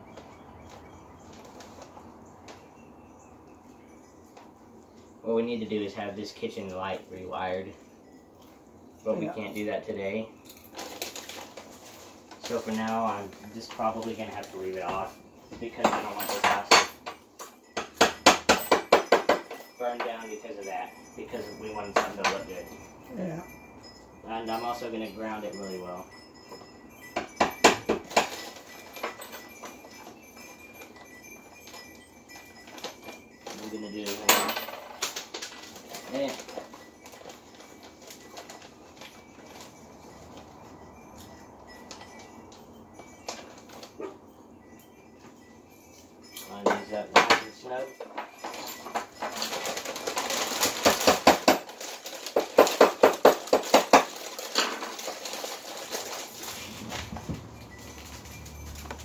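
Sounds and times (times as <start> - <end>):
metal hardware clinking: 10.4 - 20.4, 26.5 - 39.8.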